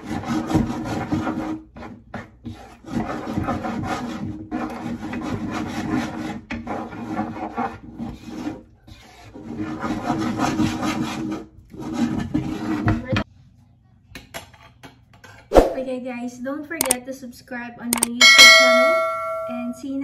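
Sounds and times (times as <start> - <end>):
spatula scraping frying pan: 0.0 - 13.2.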